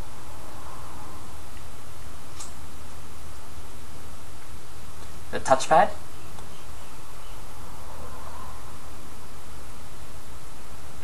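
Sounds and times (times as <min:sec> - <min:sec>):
low hum: 0:00.0 - 0:11.0
steady hiss: 0:00.0 - 0:11.0.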